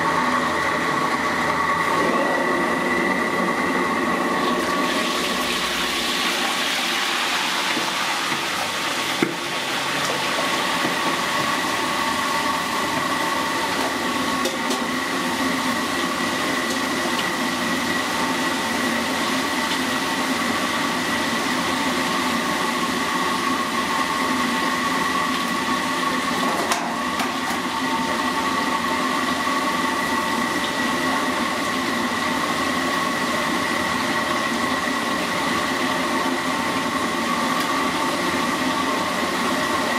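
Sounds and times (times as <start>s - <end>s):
gas burner rushing: 0.0s - 31.2s.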